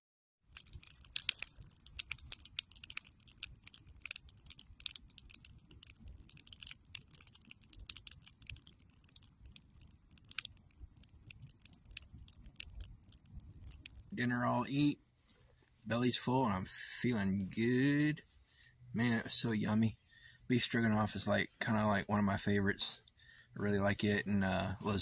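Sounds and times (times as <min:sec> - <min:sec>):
campfire crackling and popping: 0:00.4 - 0:14.9
faint low rumble: 0:00.5 - 0:25.0.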